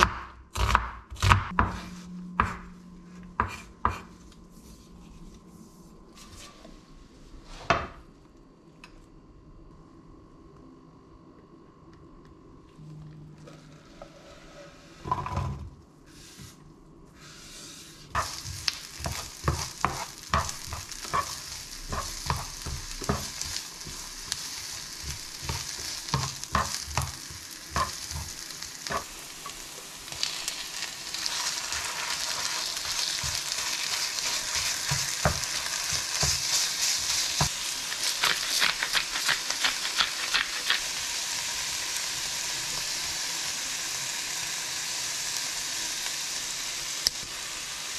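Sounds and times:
spatula scraping a pan: 0:17.2 - 0:29.6, 0:31.1 - 0:40.8
food sizzling in oil: 0:18.0 - 0:47.9.

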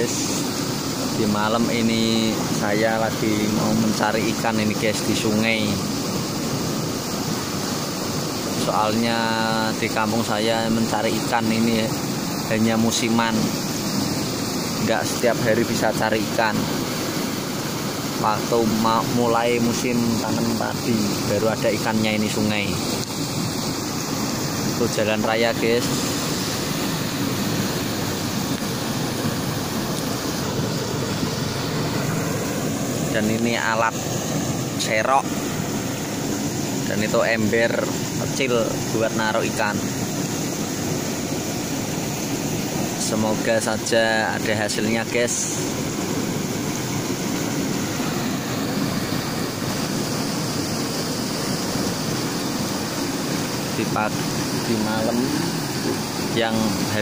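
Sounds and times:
river water rushing: 0:00.0 - 0:57.0.

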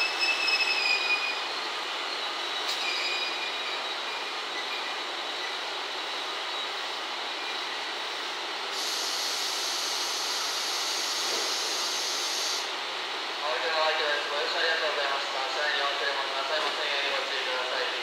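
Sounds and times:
brake squeal: 0:02.1 - 0:05.0
high hiss: 0:08.7 - 0:12.7.

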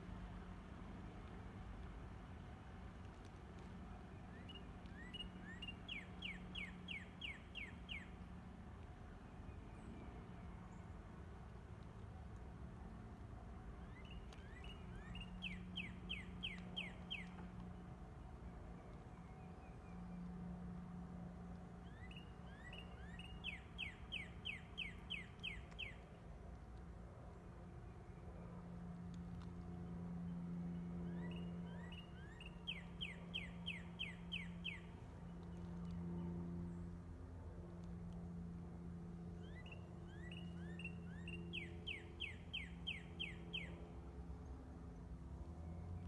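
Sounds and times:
faint low hum: 0:00.0 - 0:46.0
songbird whistling: 0:04.4 - 0:08.1, 0:21.9 - 0:26.0, 0:31.1 - 0:34.9, 0:39.4 - 0:43.8.

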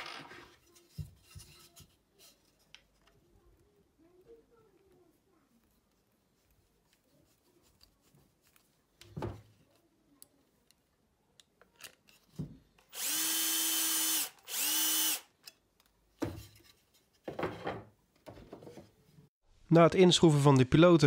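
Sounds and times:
cordless drill running: 0:12.9 - 0:15.3.

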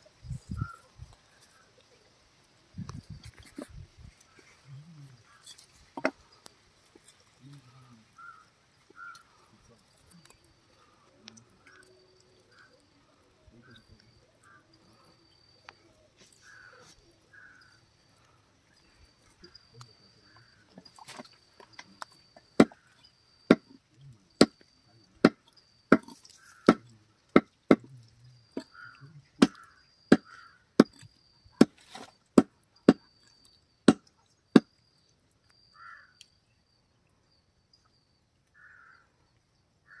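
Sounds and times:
crows cawing: 0:07.7 - 0:09.6, 0:10.8 - 0:13.1, 0:13.7 - 0:15.5, 0:16.2 - 0:18.4, 0:25.9 - 0:27.5, 0:28.5 - 0:30.7, 0:35.7 - 0:36.2, 0:38.5 - 0:39.1.

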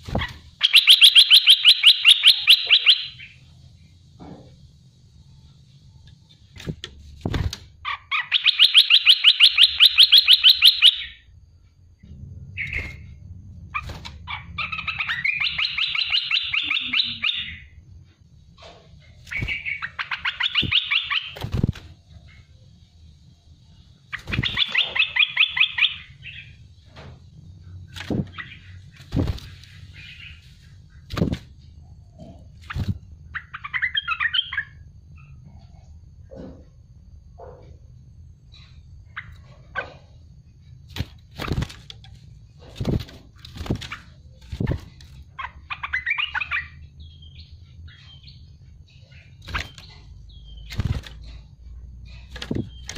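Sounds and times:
bird chattering song: 0:00.1 - 0:03.5, 0:07.8 - 0:11.3, 0:12.5 - 0:17.8, 0:19.1 - 0:21.4, 0:23.7 - 0:26.7, 0:27.7 - 0:35.8, 0:43.5 - 0:52.9
faint low rumble: 0:11.2 - 0:15.6.

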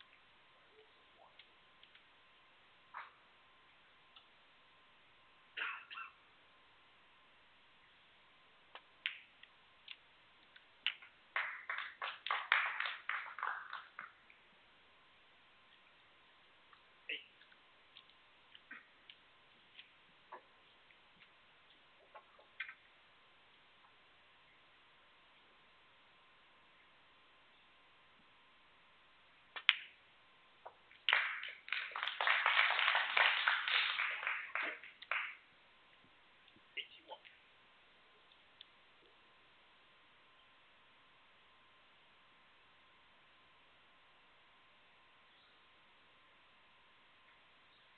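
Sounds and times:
audience applause: 0:11.3 - 0:14.2, 0:31.1 - 0:35.4.

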